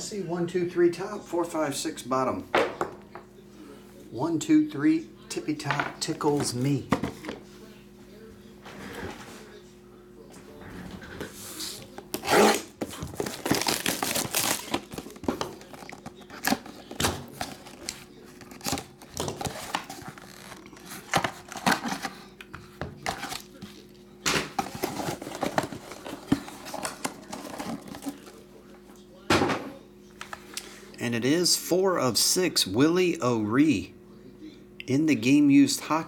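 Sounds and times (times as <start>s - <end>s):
shrink-wrap tearing and crinkling: 12.2s - 22.1s.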